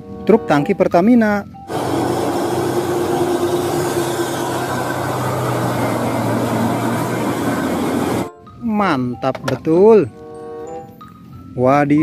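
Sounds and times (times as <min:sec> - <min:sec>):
truck diesel engine running: 0:01.7 - 0:08.3
tyres hissing on wet road: 0:01.7 - 0:08.3.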